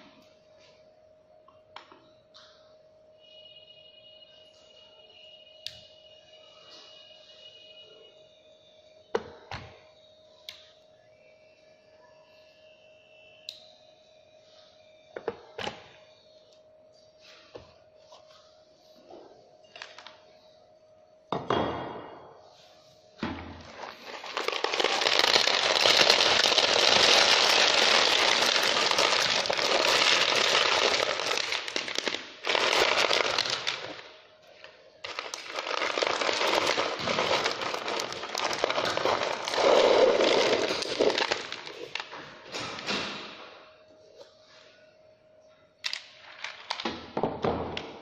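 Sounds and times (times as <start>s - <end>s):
stones pouring rattling: 23.7s - 31.5s, 35.6s - 41.7s.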